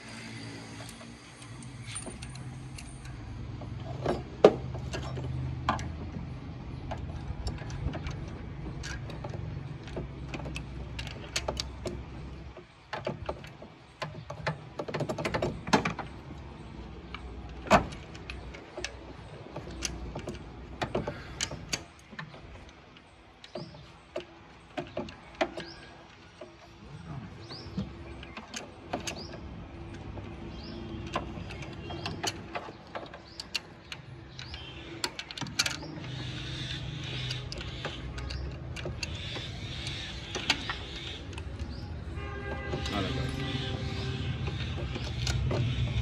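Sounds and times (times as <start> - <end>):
metal tools clinking on engine parts: 0.1 - 6.1.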